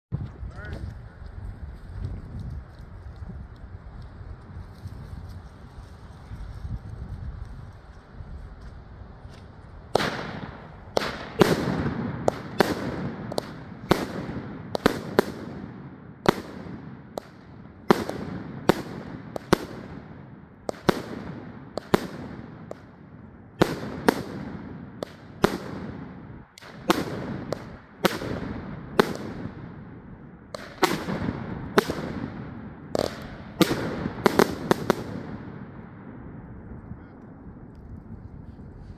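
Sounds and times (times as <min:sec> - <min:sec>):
firework bangs: 0:09.8 - 0:36.4.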